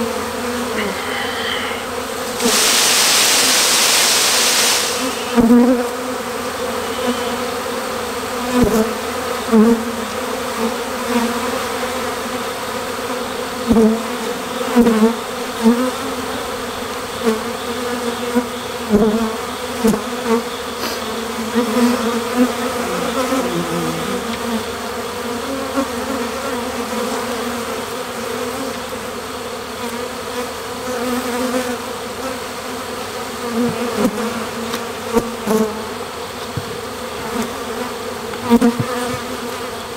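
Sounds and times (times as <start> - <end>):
bee swarm buzzing: 0.0 - 39.9
single bees whizzing past: 0.1 - 7.7.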